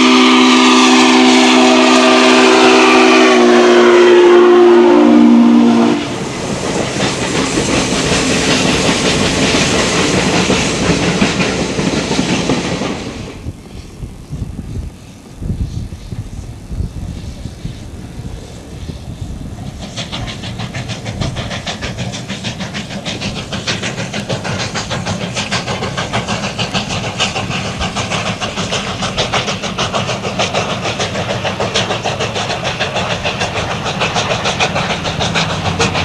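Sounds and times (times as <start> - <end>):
steam locomotive exhaust chuffs: 0.0 - 36.0
train rumble: 0.0 - 36.0.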